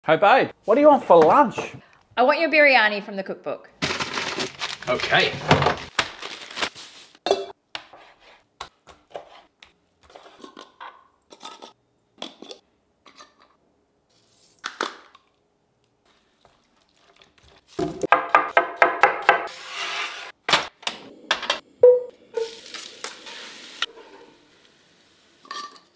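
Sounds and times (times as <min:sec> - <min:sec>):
paper being unwrapped: 0:03.8 - 0:07.2.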